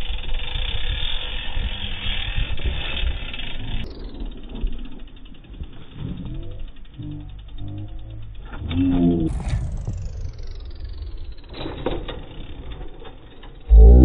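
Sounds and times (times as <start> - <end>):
bike hub ratchet ticking: 0.0 - 14.0
mountain bike riding noise: 0.0 - 14.0.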